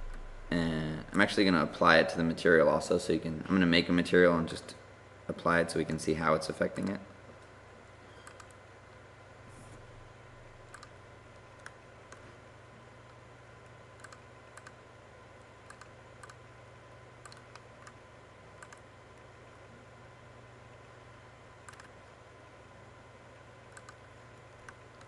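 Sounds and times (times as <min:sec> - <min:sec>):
faint steady hum: 0:00.0 - 0:25.0
computer mouse clicking: 0:08.1 - 0:08.6, 0:10.7 - 0:12.3, 0:14.0 - 0:14.8, 0:15.4 - 0:16.4, 0:17.2 - 0:18.0, 0:18.6 - 0:19.3, 0:21.6 - 0:22.1, 0:23.7 - 0:25.0.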